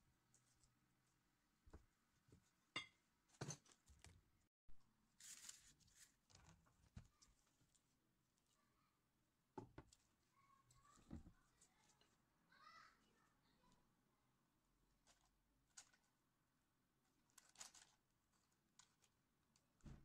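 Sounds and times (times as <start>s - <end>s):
parchment paper rustling: 5.1s - 8.6s, 14.9s - 16.2s, 17.1s - 19.8s.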